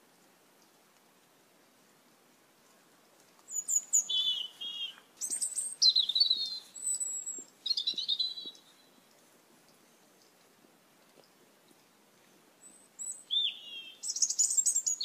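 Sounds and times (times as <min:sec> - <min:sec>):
starlings calling: 0:03.5 - 0:08.9, 0:12.6 - 0:15.0.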